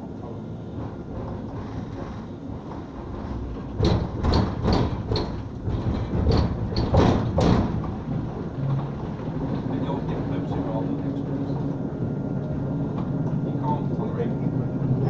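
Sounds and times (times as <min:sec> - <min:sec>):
tram low rumble: 0:00.0 - 0:15.0
sharp knocks and rattles: 0:00.2 - 0:10.8.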